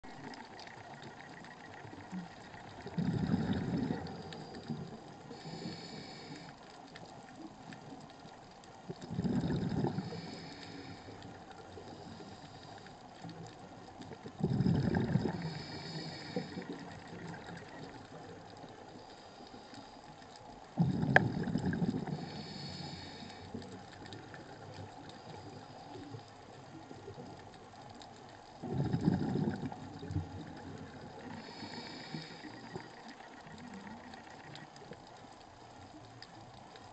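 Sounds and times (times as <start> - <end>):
bubbles from diver exhaling: 2.8 - 4.2, 9.1 - 10.1, 14.4 - 15.6, 20.8 - 22.1, 28.6 - 30.8
regulator inhalation hiss: 5.3 - 6.6, 15.4 - 16.8, 22.1 - 23.6, 31.3 - 32.9.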